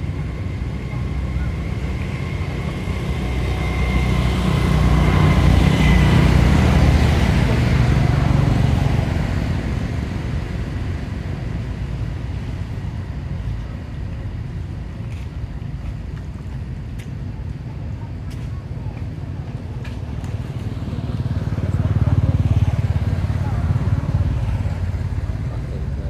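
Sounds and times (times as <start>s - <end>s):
vehicle engine passing by: 1.1s - 11.6s, 20.0s - 26.0s.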